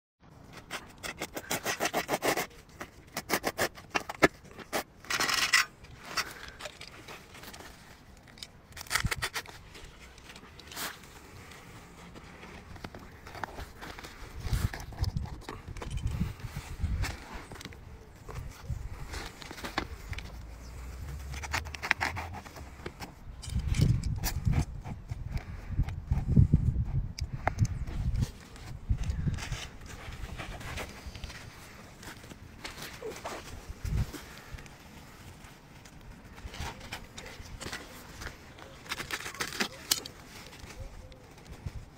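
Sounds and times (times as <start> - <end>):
scratchy scrapes on artificial turf: 0.5 - 3.8.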